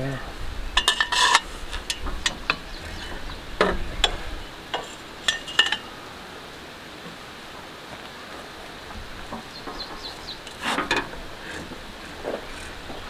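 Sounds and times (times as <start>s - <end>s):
metal tools clinking: 0.8s - 5.9s.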